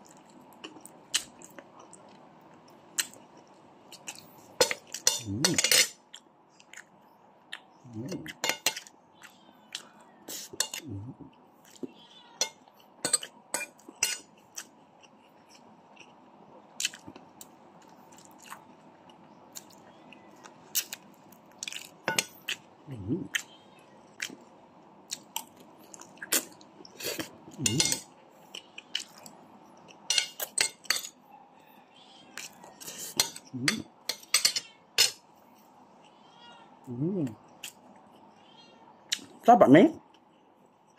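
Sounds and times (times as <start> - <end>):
chewing: 0.0 - 11.9, 12.7 - 24.5, 25.1 - 31.1
cutlery scraping a plate: 4.6 - 6.0, 8.3 - 8.9, 10.4 - 10.8, 12.4 - 14.3, 27.1 - 28.1, 30.1 - 31.1, 32.4 - 35.2.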